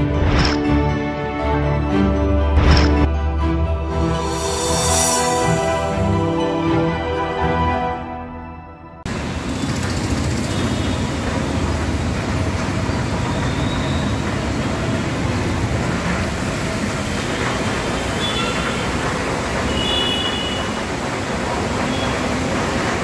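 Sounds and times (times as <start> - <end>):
vehicle engines: 9.0 - 23.0.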